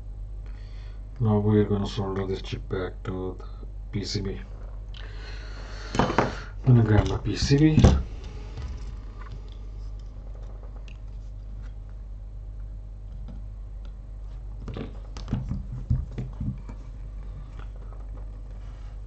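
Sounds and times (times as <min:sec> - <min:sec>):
low hum: 0:00.0 - 0:19.0
small clicks knocks and rustles: 0:06.9 - 0:12.0, 0:12.6 - 0:19.0.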